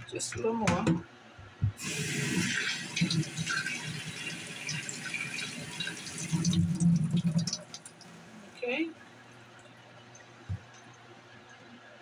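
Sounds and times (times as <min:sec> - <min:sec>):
faucet running into sink: 0:01.8 - 0:08.3
hands rinsed under water: 0:01.8 - 0:08.3.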